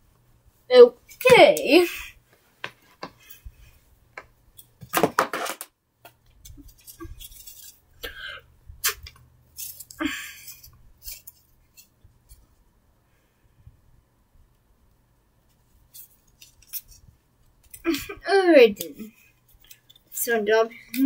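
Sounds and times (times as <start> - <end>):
wooden sticks clicking and knocking: 18.8 - 20.2.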